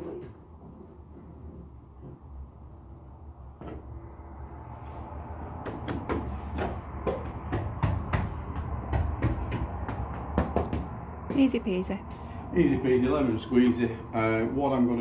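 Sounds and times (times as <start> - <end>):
hands patting a wall panel: 5.5 - 11.4.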